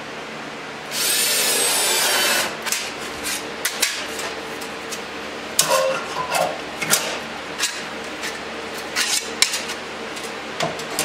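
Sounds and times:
power drill whirring: 0:00.9 - 0:02.6.

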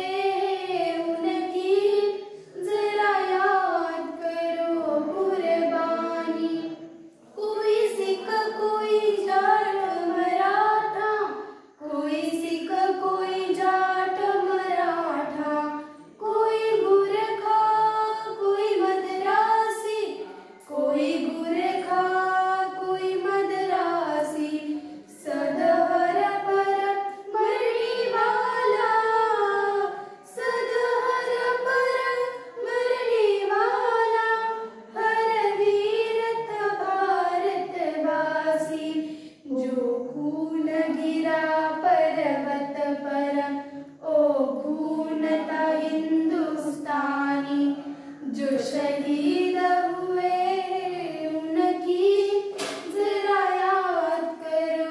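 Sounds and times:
girls singing unaccompanied: 0:00.0 - 0:54.9.

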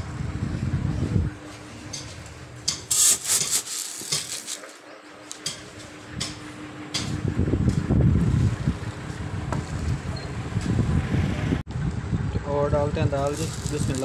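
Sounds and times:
dried chickpeas being handled: 0:02.9 - 0:04.7, 0:13.2 - 0:14.0
plastic bags rustling: 0:02.9 - 0:04.8, 0:13.2 - 0:14.0.

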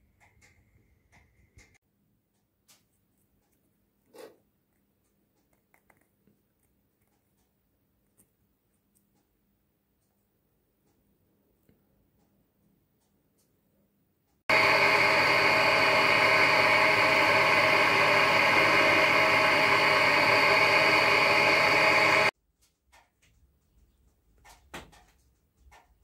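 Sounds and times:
milling machine whining: 0:14.5 - 0:22.3
light clicks and taps: 0:22.6 - 0:26.0.

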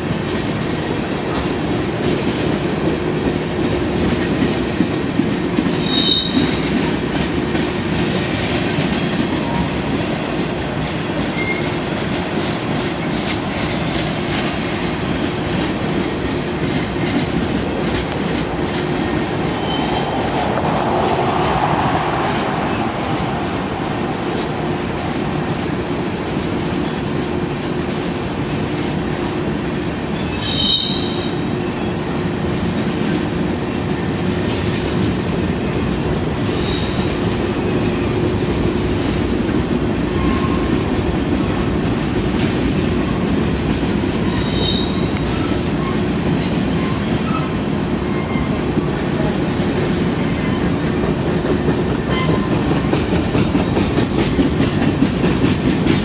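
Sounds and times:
train wheels rumbling on rail: 0:00.0 - 0:56.0
high wheel squeals: 0:05.7 - 0:06.8, 0:19.5 - 0:20.4, 0:30.2 - 0:31.4, 0:44.2 - 0:48.6.

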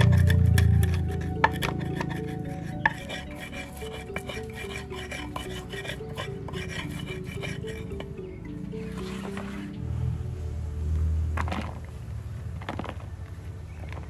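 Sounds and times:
pestle grinding in stone mortar: 0:00.0 - 0:09.7.

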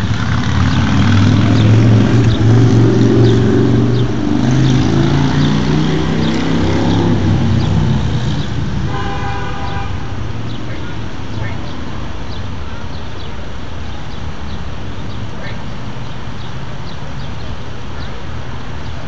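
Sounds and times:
vehicle engine passing: 0:00.0 - 0:19.0
car horn toot: 0:08.9 - 0:10.2.

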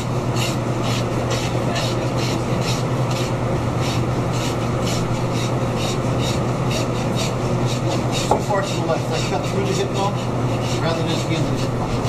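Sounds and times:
hand saw rasping through bone: 0:00.0 - 0:12.0.

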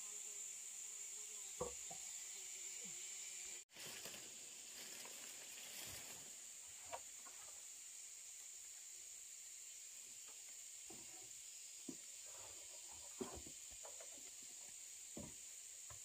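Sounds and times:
insects chirring: 0:00.0 - 0:16.0
faint knock: 0:01.6 - 0:02.0.

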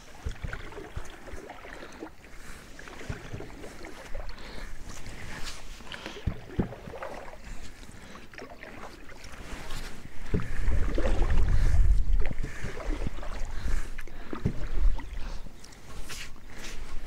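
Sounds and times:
paddle splashing water: 0:00.0 - 0:17.0
wind rumble on microphone: 0:09.6 - 0:15.4.

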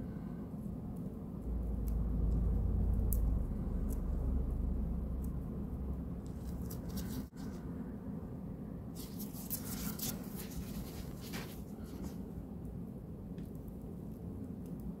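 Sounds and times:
steady low hum: 0:00.0 - 0:15.0
shed skin crackling: 0:06.2 - 0:07.6, 0:09.0 - 0:12.2.

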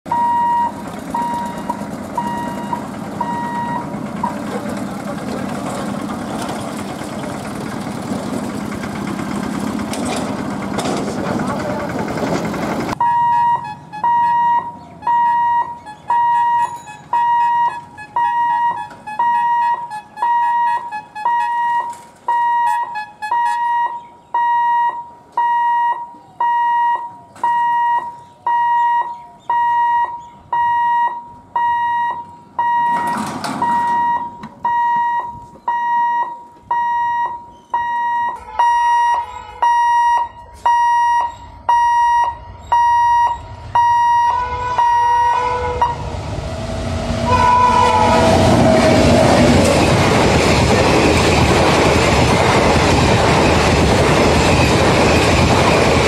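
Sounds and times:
level crossing warning bell: 0:00.1 - 0:05.1, 0:13.0 - 0:46.1
rushing noise burst: 0:42.4 - 0:56.0.

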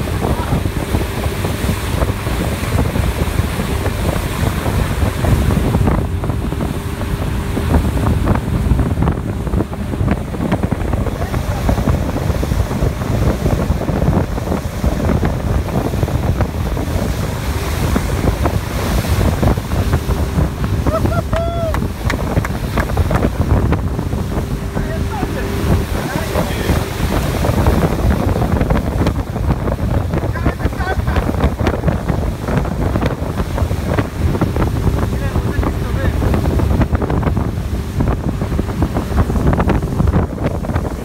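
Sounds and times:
boat running at speed: 0:00.0 - 0:41.0
wind buffeting microphone: 0:00.0 - 0:41.0.

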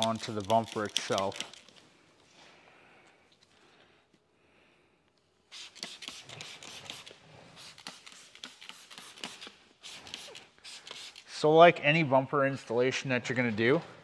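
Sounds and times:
trigger spray bottle squirting: 0:00.0 - 0:01.8, 0:05.5 - 0:11.3.

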